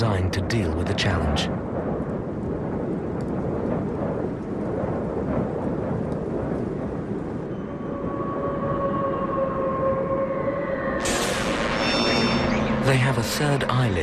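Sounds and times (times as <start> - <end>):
low rumbling noise: 0.0 - 14.0
held steady tones: 11.0 - 14.0.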